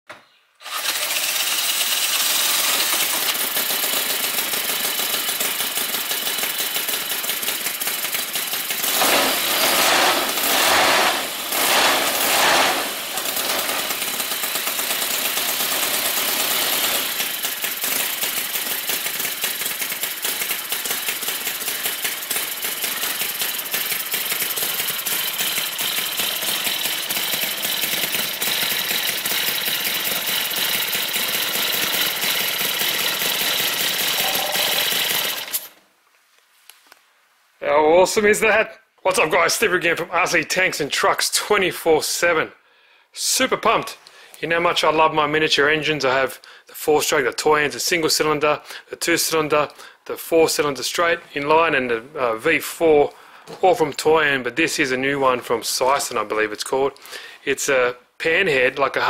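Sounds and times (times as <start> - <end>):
model engine running: 0.6 - 35.7.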